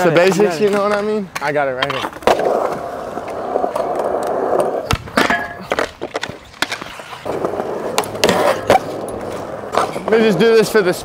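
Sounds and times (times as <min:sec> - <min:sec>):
skateboard clacking: 0:00.0 - 0:11.0
skateboard wheels rolling on concrete: 0:00.0 - 0:11.0
skateboard pop: 0:02.2 - 0:08.9.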